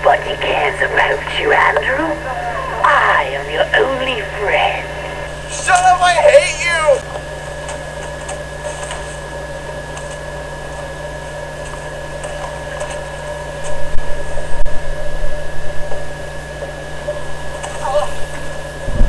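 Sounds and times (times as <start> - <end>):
electrical hum and hiss: 0.0 - 19.0.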